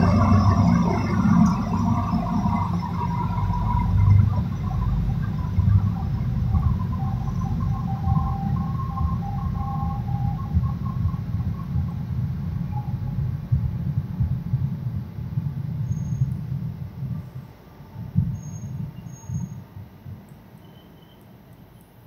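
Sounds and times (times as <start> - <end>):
train wheels rumbling: 0.0 - 21.2
faint high whine: 0.0 - 22.0.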